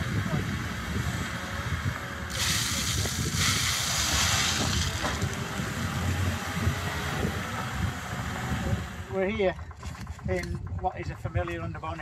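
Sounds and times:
engine rumbling under load: 0:00.0 - 0:12.0
gravel pouring from bucket: 0:02.3 - 0:05.3.

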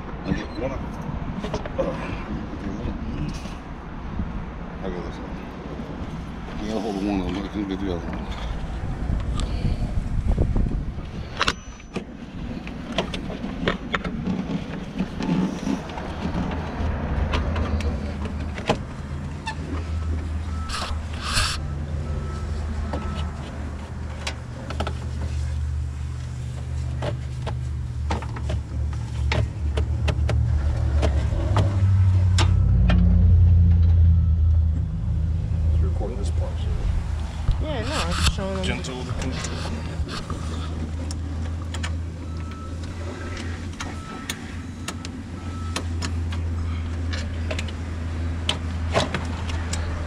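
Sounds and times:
low engine-like hum: 0:14.3 - 0:50.0.

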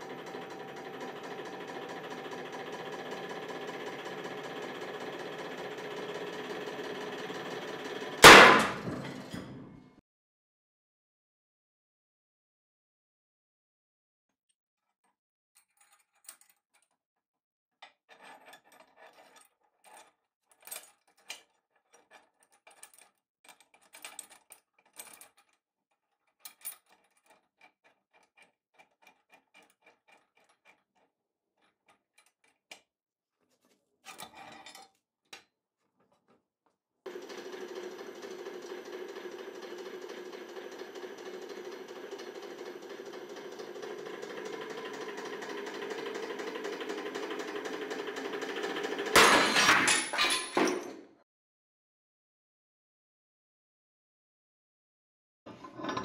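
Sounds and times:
hydraulic pump motor running: 0:00.0 - 0:09.8, 0:37.1 - 0:49.2.

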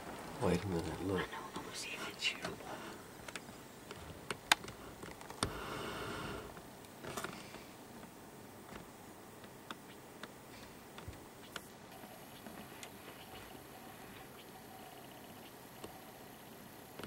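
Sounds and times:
breathy hiss: 0:01.2 - 0:03.2, 0:04.8 - 0:06.6.

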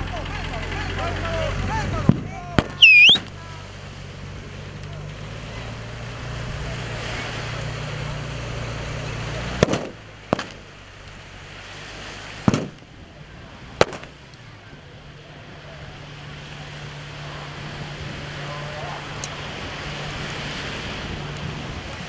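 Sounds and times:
sharp bangs: 0:02.0 - 0:03.4, 0:09.5 - 0:10.8, 0:12.4 - 0:13.0, 0:13.8 - 0:14.3.

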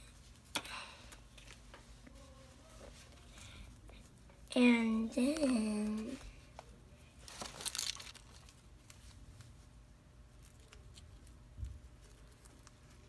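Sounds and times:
plastic packaging crinkling: 0:07.2 - 0:09.4.

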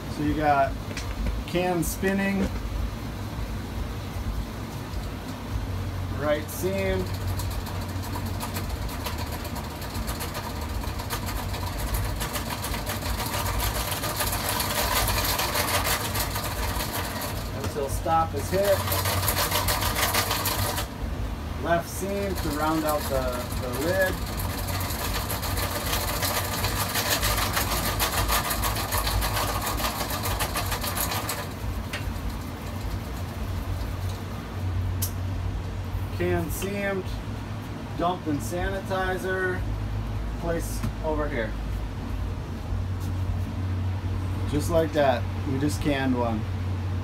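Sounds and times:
can seamer motor hum: 0:06.2 - 0:34.5
fine clatter of seaming roller: 0:06.4 - 0:20.9, 0:21.6 - 0:34.1.

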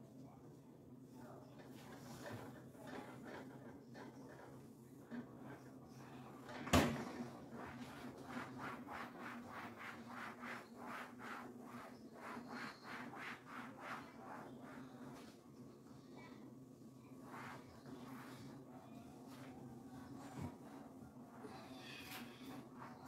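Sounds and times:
cloth scrubbing refrigerator: 0:07.1 - 0:15.4, 0:17.0 - 0:23.0.

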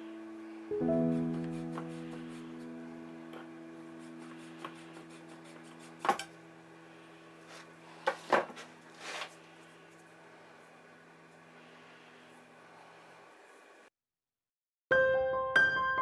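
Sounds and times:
faint steady hum: 0:00.0 - 0:13.9.

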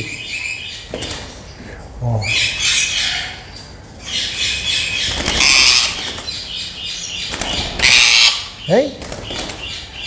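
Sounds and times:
parakeet squawking: 0:02.3 - 0:08.8.

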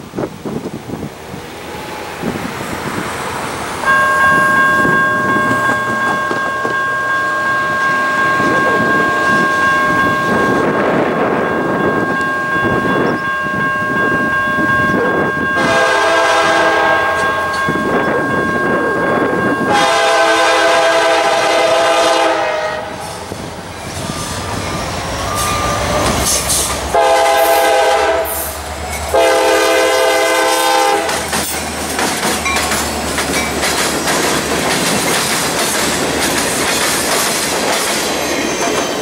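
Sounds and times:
freight cars clacking on rails: 0:02.2 - 0:20.2, 0:23.0 - 0:39.0
locomotive air horn blasts: 0:15.5 - 0:17.5, 0:19.6 - 0:23.0, 0:26.9 - 0:31.2.

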